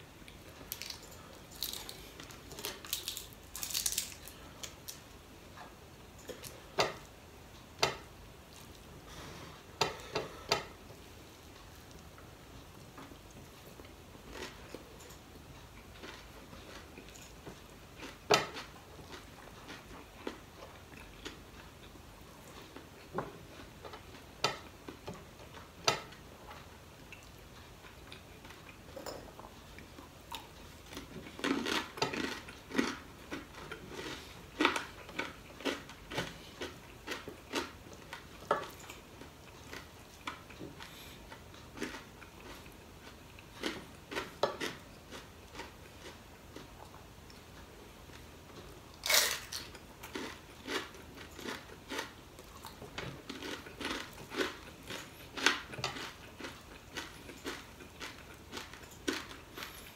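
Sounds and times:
chewing: 0:12.7 - 0:59.9.

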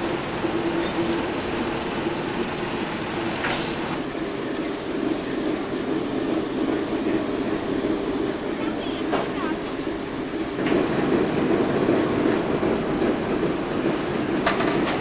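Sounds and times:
steam locomotive rumbling: 0:00.0 - 0:15.0
sharp steam hiss: 0:03.4 - 0:04.0.

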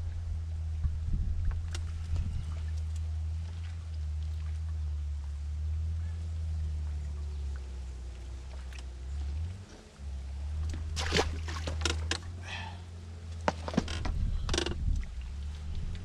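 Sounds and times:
wind buffeting microphone: 0:00.0 - 0:02.8, 0:14.0 - 0:16.0.

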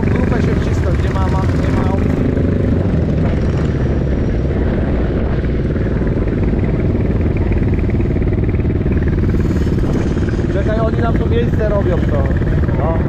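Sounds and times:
motorcycle engine running: 0:00.0 - 0:13.0.

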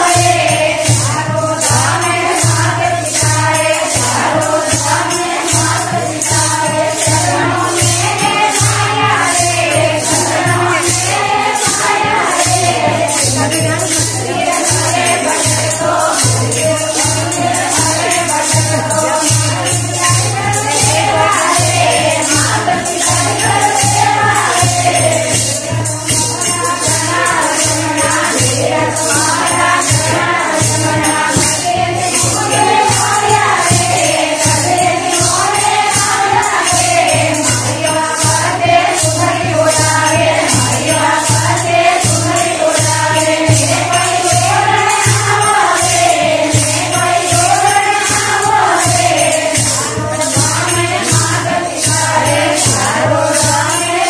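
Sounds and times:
jingling hand percussion: 0:00.0 - 0:54.0
women singing in unison: 0:00.0 - 0:54.0.

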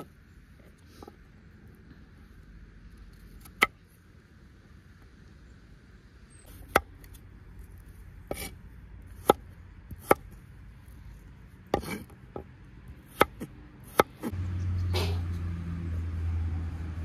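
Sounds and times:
sharp chopping strikes: 0:13.1 - 0:14.3.

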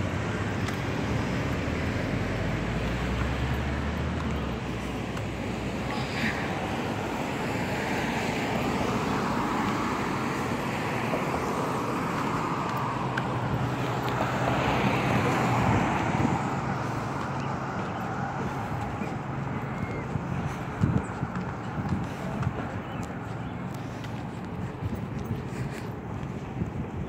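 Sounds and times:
cars passing on road: 0:00.0 - 0:27.0.

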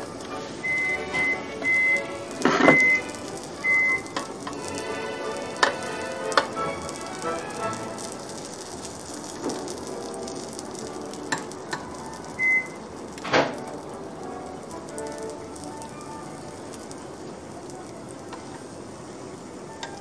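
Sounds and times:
vegetables sizzling on a grill: 0:00.0 - 0:20.0
metal tongs clicking on grill plates: 0:04.0 - 0:04.8, 0:05.6 - 0:06.6.

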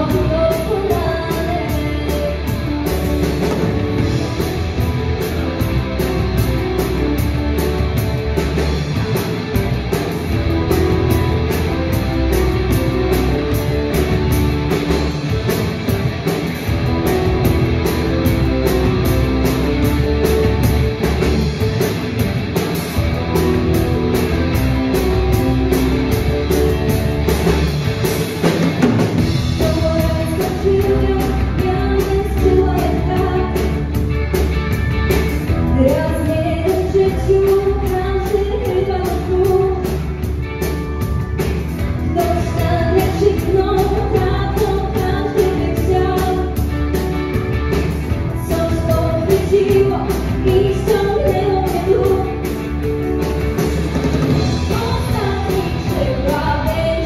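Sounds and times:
person singing: 0:00.0 - 0:03.0, 0:29.6 - 0:33.9
pop-rock song: 0:00.0 - 0:57.0
steady drum beat: 0:00.0 - 0:57.0.

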